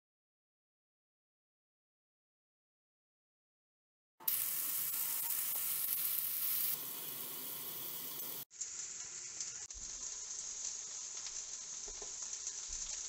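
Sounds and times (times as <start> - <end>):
fish sizzling in oil: 4.2 - 13.0.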